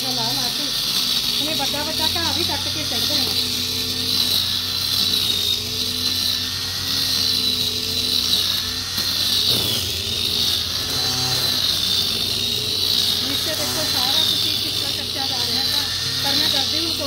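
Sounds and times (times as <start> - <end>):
grass trimmer high whine: 0.0 - 17.0.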